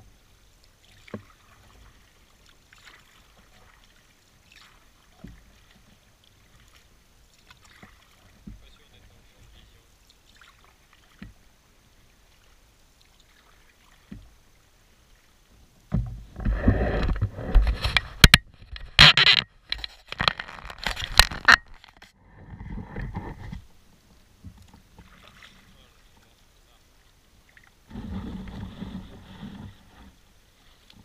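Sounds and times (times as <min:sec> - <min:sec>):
handling noise on microphone: 0:15.9 - 0:23.7, 0:27.9 - 0:30.2.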